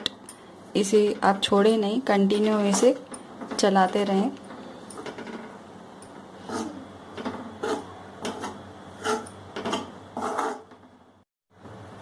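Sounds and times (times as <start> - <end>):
spatula scraping roasting flour: 6.4 - 6.8, 7.6 - 10.7.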